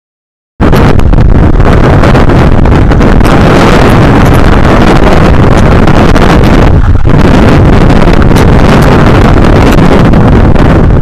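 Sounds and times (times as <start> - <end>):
wind buffeting microphone: 0.6 - 11.0.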